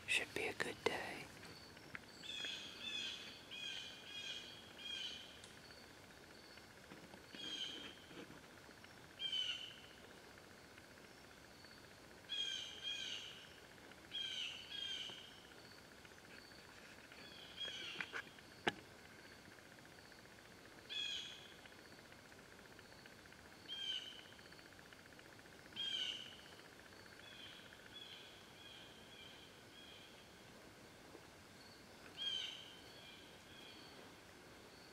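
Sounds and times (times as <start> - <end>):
faint steady buzz: 0.0 - 34.9.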